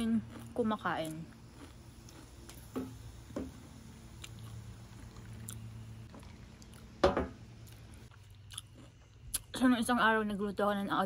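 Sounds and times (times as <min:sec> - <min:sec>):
person eating crunchy food: 0:00.0 - 0:03.3, 0:04.1 - 0:07.0, 0:07.6 - 0:09.5
steady low hum: 0:00.0 - 0:11.0.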